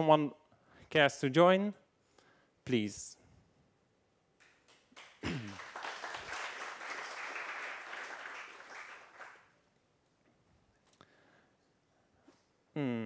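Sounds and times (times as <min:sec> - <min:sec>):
audience applauding: 0:04.7 - 0:09.5.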